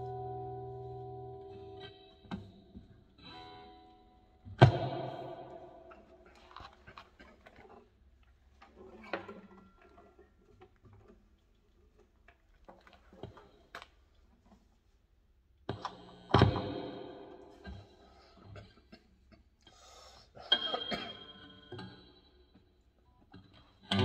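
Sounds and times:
guitar strings ringing: 0.0s - 6.2s
guitar handling clicks and knocks: 1.5s - 7.9s, 8.6s - 11.4s, 23.3s - 24.0s
sharp thump on guitar: 4.5s - 6.0s.

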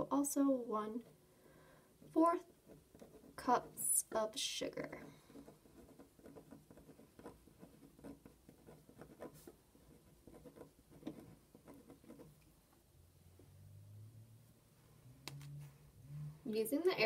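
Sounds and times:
felt-tip pen writing on paper: 2.5s - 3.4s, 5.0s - 12.4s.

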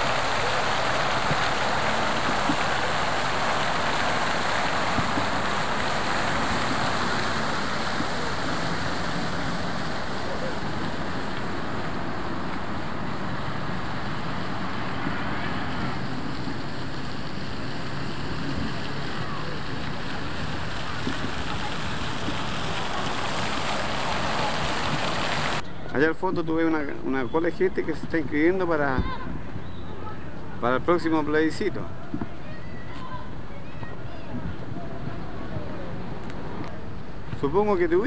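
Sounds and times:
fountain water splashing: 0.0s - 38.0s.

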